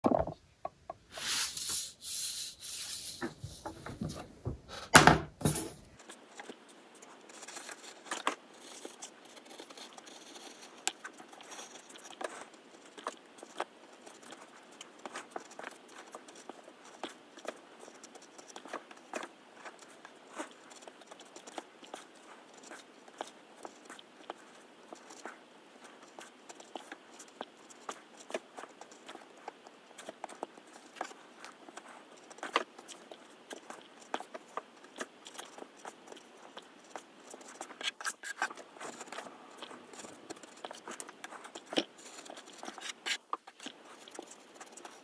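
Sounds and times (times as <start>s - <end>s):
craft knife cutting paper: 1.2s - 4.2s.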